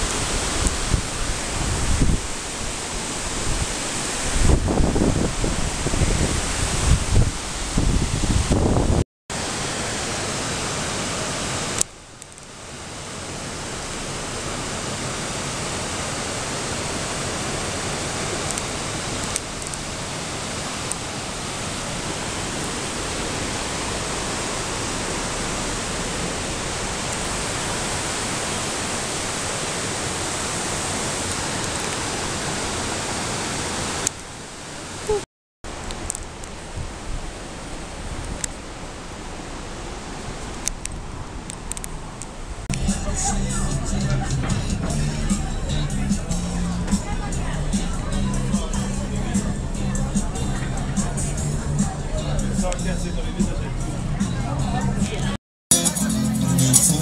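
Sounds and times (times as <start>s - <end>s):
waterfall rushing over rocks: 0.0s - 42.8s.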